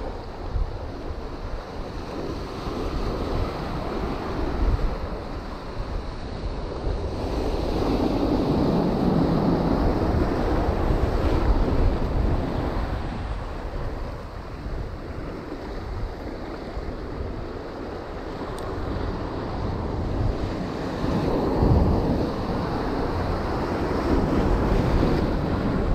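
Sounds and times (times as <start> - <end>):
wind buffeting microphone: 0.0 - 25.9.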